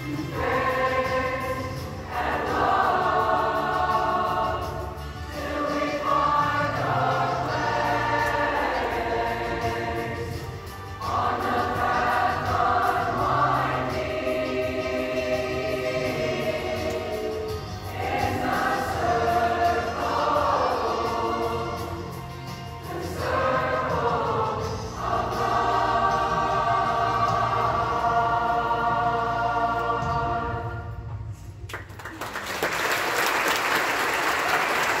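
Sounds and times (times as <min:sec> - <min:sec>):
youth choir singing: 0:00.0 - 0:31.0
audience applause: 0:31.7 - 0:35.0.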